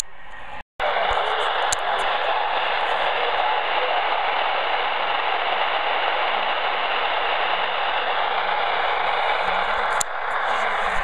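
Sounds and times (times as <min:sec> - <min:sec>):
radio static hiss: 0:00.0 - 0:11.0.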